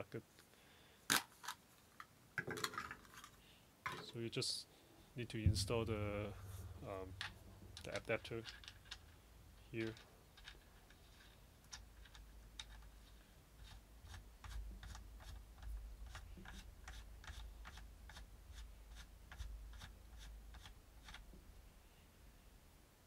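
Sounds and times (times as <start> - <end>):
low handling rumble: 5.2 - 9.6.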